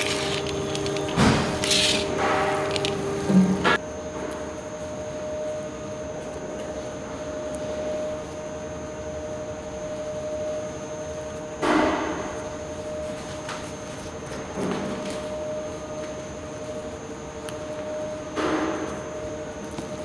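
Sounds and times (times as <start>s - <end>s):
leaves rustling in hands: 0.0s - 3.1s
extractor fan hum: 0.0s - 3.8s.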